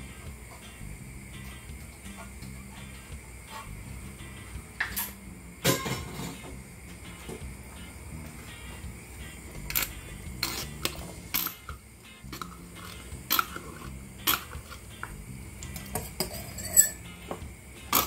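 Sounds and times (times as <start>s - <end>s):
metal utensil clinking on tin can: 15.8s - 17.0s.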